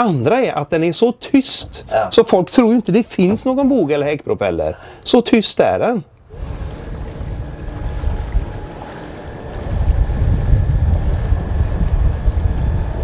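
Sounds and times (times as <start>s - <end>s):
wind rumbling on microphone: 6.2s - 13.0s.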